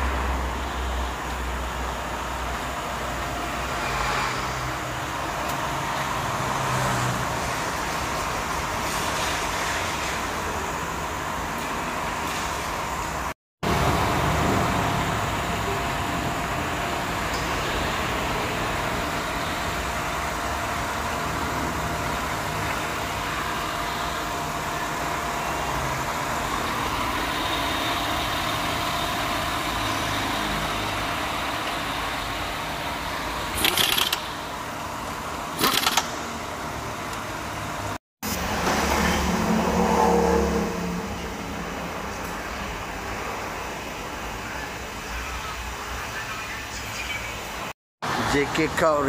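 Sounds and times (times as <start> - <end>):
car engine idling: 12.8 - 37.9.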